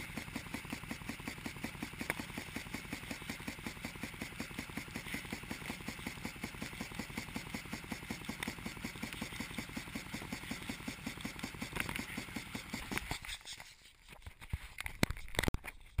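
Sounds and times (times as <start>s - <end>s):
sprinkler water spraying: 0.0s - 15.4s.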